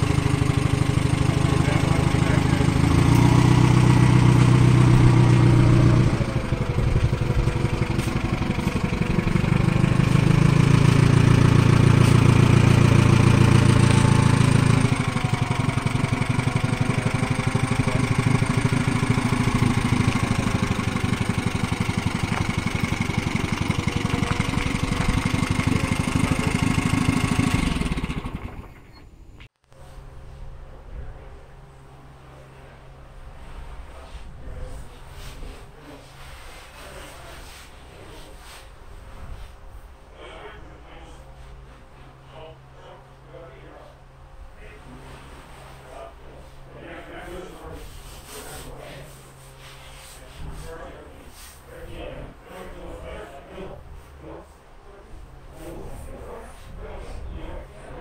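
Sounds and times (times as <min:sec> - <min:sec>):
forklift engine running: 0:00.0 - 0:29.4.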